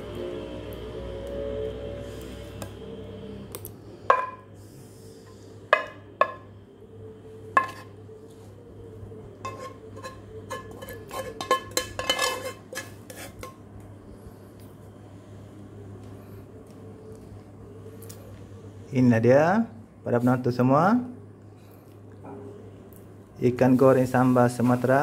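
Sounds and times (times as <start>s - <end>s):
pan clinking against plate: 9.4s - 13.6s
plastic spatula scraping frying pan: 9.5s - 13.5s.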